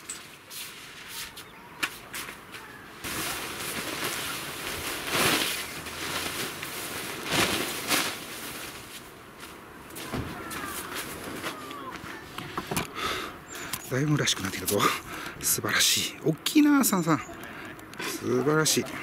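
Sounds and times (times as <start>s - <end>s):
plastic rug rustling and crinkling: 0.0s - 12.6s
rug swishing as flapped: 0.4s - 11.6s.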